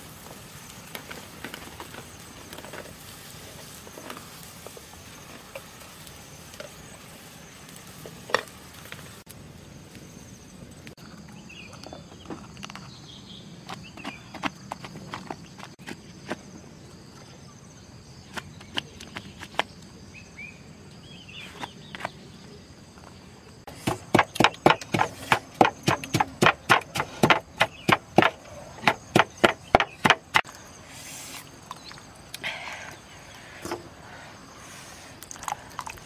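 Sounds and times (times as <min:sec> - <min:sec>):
stone pestle pounding in mortar: 0:23.8 - 0:30.4.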